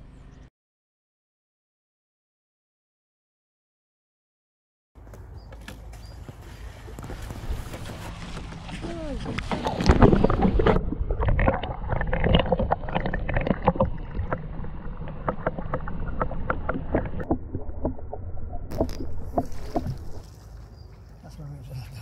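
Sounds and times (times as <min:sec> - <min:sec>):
muffled underwater sloshing: 0:06.6 - 0:20.8.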